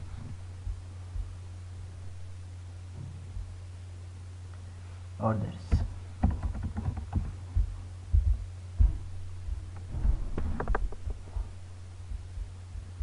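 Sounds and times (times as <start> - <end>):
low electrical hum: 0.0 - 13.0
keyboard typing: 6.2 - 7.4.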